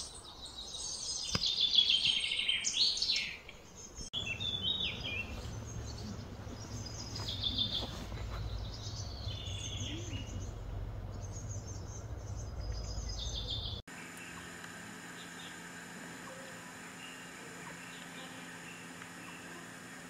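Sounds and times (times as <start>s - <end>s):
birds chirping: 0.0s - 20.0s
low background rumble: 4.2s - 14.4s.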